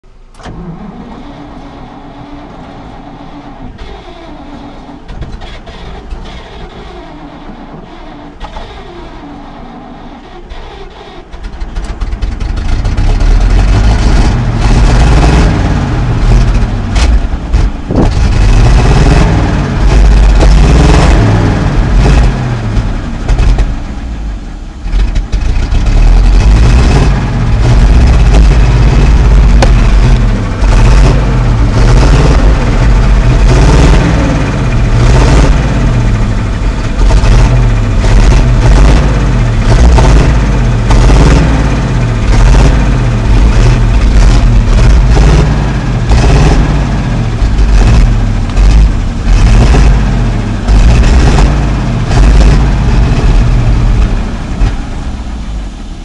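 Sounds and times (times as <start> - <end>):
truck engine revving: 0.0 - 56.0.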